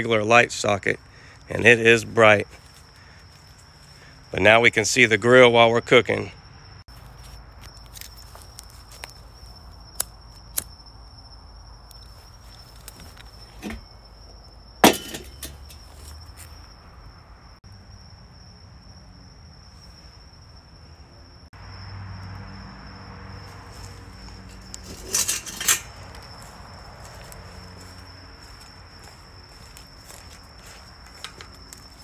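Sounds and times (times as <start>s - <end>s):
cricket chirping: 0.0s - 32.0s
metal chimney clanking down: 14.8s - 15.9s
rattling clatter: 14.8s - 15.9s, 24.8s - 26.0s.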